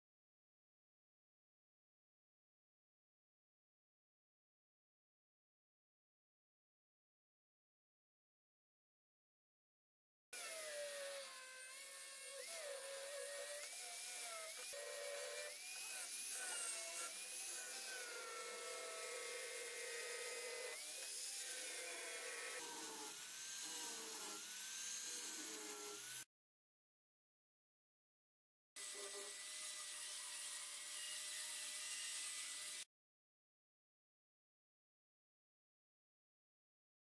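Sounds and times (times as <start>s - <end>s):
angle grinder sanding wood: 10.4s - 26.3s.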